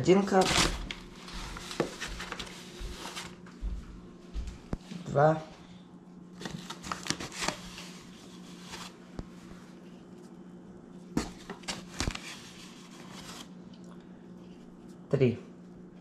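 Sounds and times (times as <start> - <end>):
flour bag rustling: 0.1 - 3.8.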